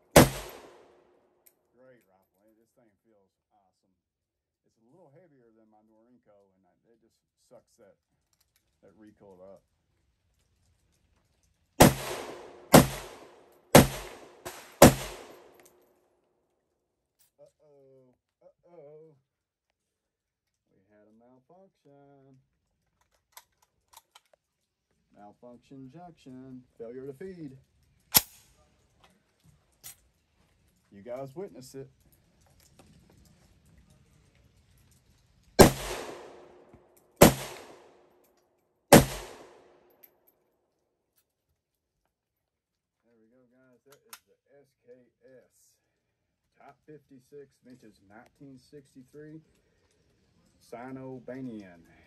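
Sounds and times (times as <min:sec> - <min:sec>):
rifle shots echoing: 0:00.0 - 0:01.0, 0:11.8 - 0:15.7, 0:35.6 - 0:38.0, 0:38.9 - 0:39.8.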